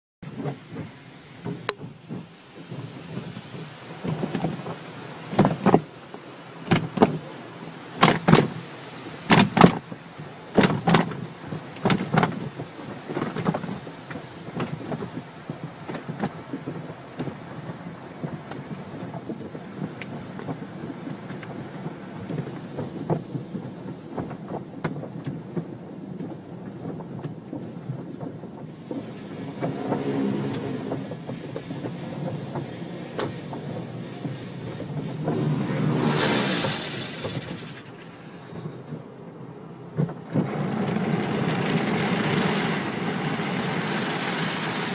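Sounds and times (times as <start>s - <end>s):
heavy rumbling: 0.2s - 44.9s
water spray: 0.3s - 10.2s, 28.7s - 38.9s.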